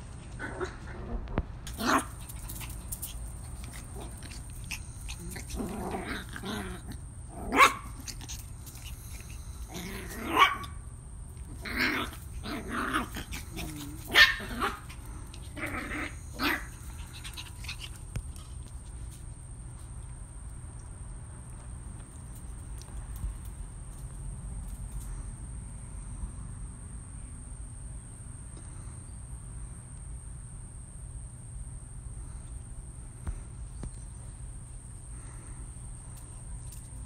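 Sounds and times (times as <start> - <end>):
puppies growling: 0.4 - 19.2
puppies barking: 7.5 - 8.4, 10.0 - 10.8, 11.5 - 18.0.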